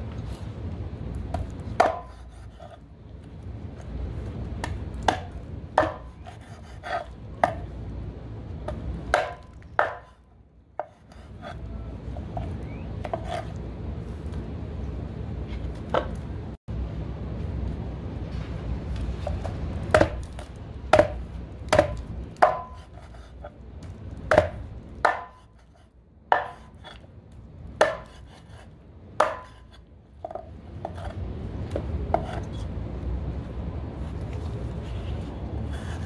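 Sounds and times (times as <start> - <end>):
cleaver chopping on wooden board: 1.4 - 2.3, 4.6 - 7.6, 9.1 - 10.2, 19.9 - 23.0, 24.3 - 25.6, 26.3 - 26.8, 27.8 - 28.4, 29.2 - 30.4.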